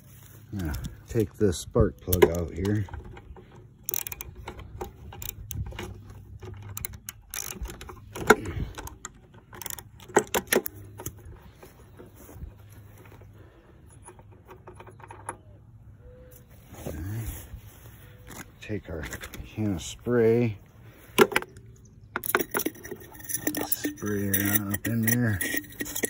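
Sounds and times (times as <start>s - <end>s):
ratchet clicking: 3.8s - 8.9s, 9.5s - 10.7s, 22.2s - 26.0s
metal clacks: 22.2s - 26.0s.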